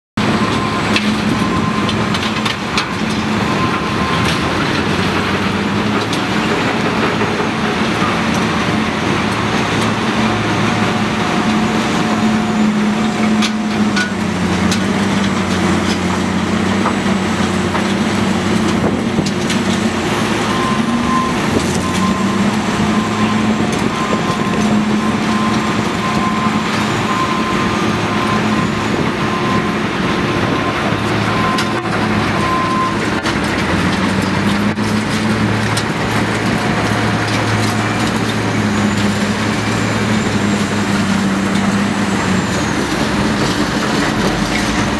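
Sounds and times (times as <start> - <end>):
diesel engine under load: 0.1 - 44.9
backup alarm beeping: 0.2 - 14.1, 19.8 - 33.2.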